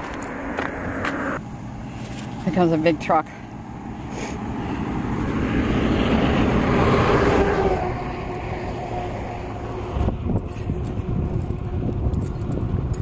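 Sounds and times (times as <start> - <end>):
truck driving past: 0.0 - 12.0.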